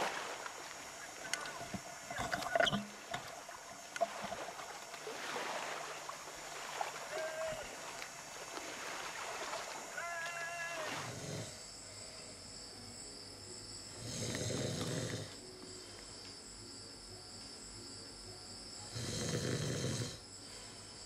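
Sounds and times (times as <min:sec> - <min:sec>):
man snoring: 0:11.0 - 0:11.6, 0:14.0 - 0:15.4, 0:18.9 - 0:20.2.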